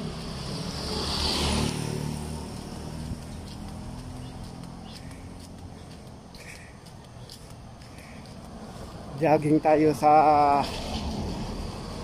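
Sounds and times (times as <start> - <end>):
footsteps on paved road: 0.0 - 11.2
low traffic noise: 0.0 - 12.0
motorcycles passing: 0.0 - 12.0.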